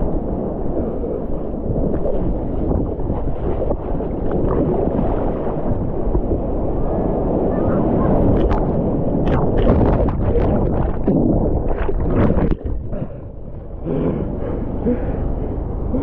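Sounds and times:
ocean surf churning: 0.0s - 16.0s
wind on microphone: 0.0s - 16.0s
wave crashing with sharp splashes: 1.7s - 13.0s.

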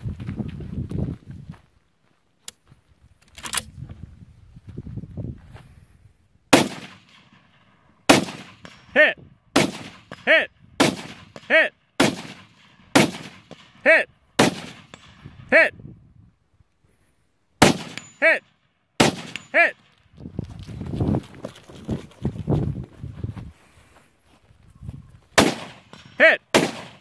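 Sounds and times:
rifle shots: 6.5s - 15.2s, 17.6s - 18.2s, 19.0s - 19.7s, 25.4s - 27.0s.

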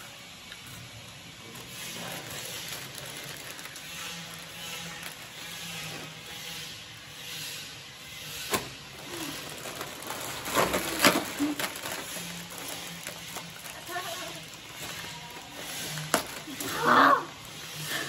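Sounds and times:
crisp packets crinkling and tearing: 1.5s - 5.9s, 9.0s - 16.8s.

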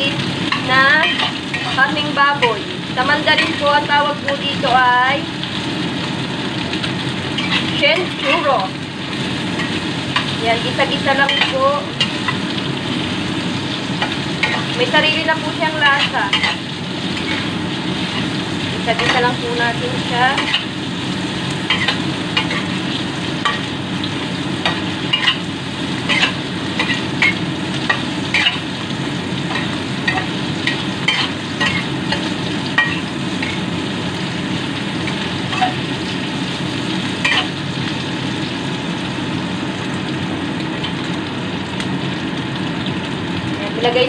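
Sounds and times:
meat sizzling in hot oil: 0.0s - 44.0s
spatula scraping and tapping pan: 26.1s - 28.6s.

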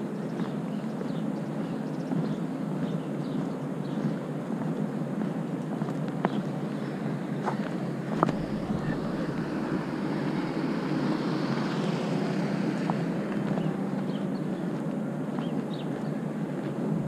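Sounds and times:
low rumble moving along pavement: 0.0s - 17.0s
wind rushing over microphone: 3.8s - 17.0s.

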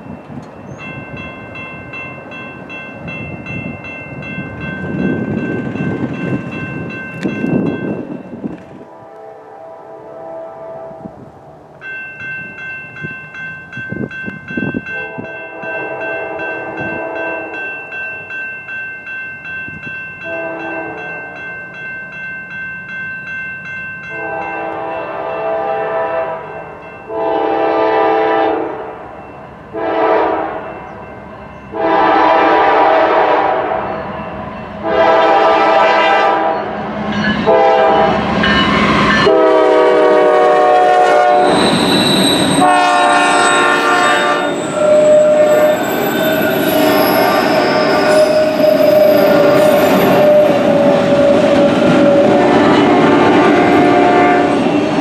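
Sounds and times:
crossing bell ringing: 0.0s - 9.0s, 11.7s - 55.0s
locomotive engine and wheels: 0.0s - 9.1s, 11.2s - 55.0s
locomotive air horn blasts: 8.9s - 11.2s, 14.9s - 17.6s, 20.2s - 21.3s, 24.1s - 29.0s, 29.7s - 30.7s, 31.8s - 33.9s, 34.8s - 36.7s, 37.4s - 38.2s, 39.2s - 46.0s, 51.4s - 54.6s.

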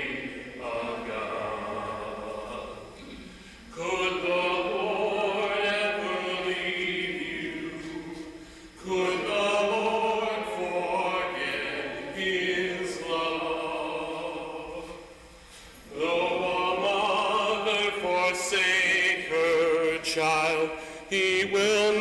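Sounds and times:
unaccompanied hymn singing: 0.0s - 22.0s.

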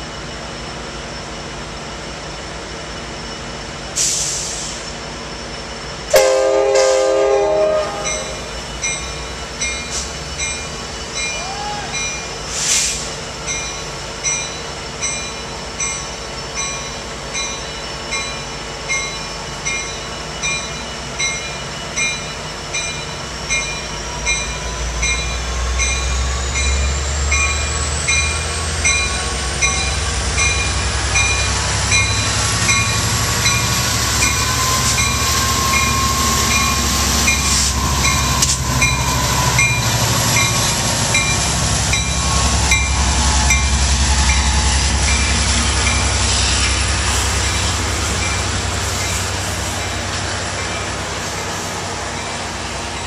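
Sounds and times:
locomotive engine rumble: 0.0s - 53.0s
brief hiss: 4.0s - 5.0s, 12.5s - 13.2s
locomotive bell ringing: 6.1s - 12.5s, 13.4s - 53.0s.

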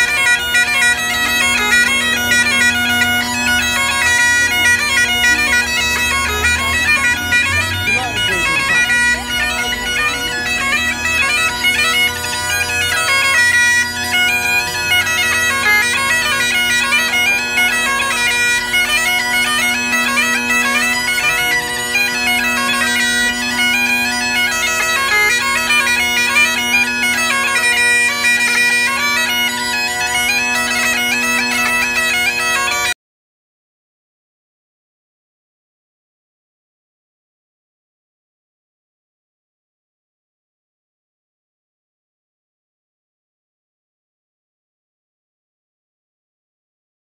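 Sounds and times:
bagpipe playing: 0.0s - 33.0s.

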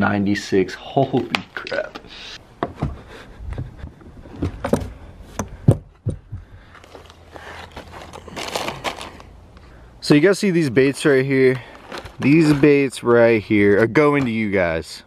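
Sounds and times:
sharp knocks and clicks: 4.4s - 6.5s
plastic packages crinkling: 6.8s - 9.4s, 11.2s - 12.9s.

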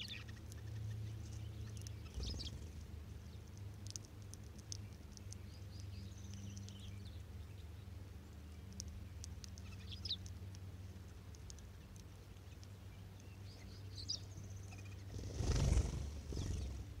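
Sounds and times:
finches chirping: 0.0s - 7.9s, 11.4s - 17.0s
flock wingbeats: 15.1s - 16.9s.

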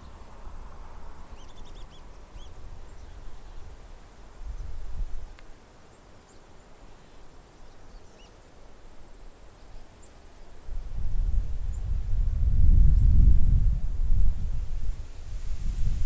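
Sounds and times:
swallows chirping: 1.3s - 3.7s
wind buffeting microphone: 10.7s - 16.0s.

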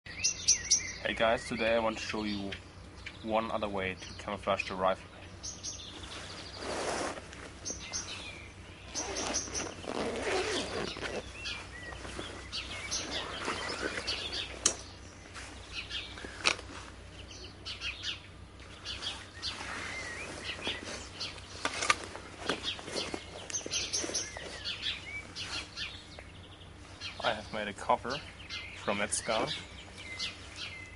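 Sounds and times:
birds chirping and singing: 0.1s - 30.9s
rustling and handling noise: 5.8s - 17.2s, 18.5s - 25.9s.

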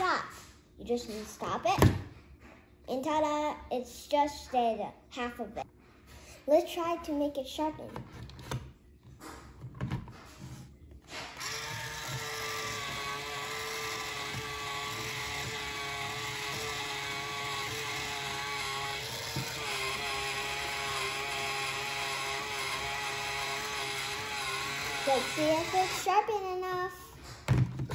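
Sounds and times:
electric pencil sharpener whirring: 11.2s - 26.2s.

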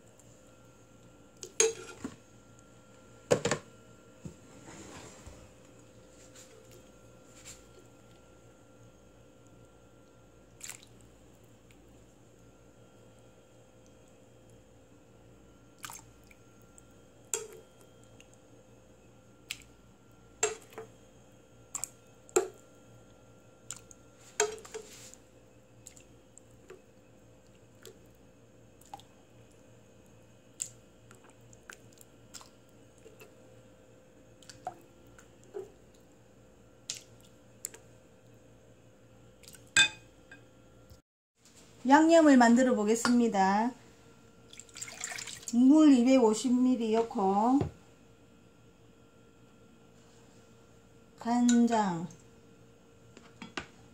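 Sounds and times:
wet chicken squishing and dripping: 10.5s - 11.1s, 15.8s - 16.9s, 36.8s - 37.9s, 39.4s - 39.7s, 44.5s - 45.5s
splashes into water: 44.5s - 45.5s.

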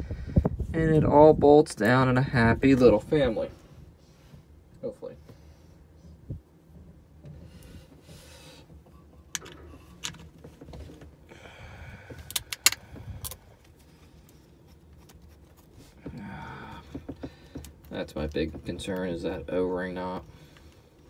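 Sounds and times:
small metal parts clicking: 12.3s - 13.4s.

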